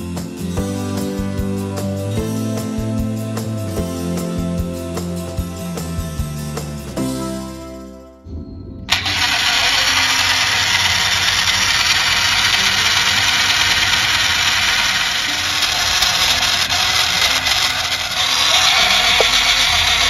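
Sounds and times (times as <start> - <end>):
small motor whirring: 8.9 - 20.0.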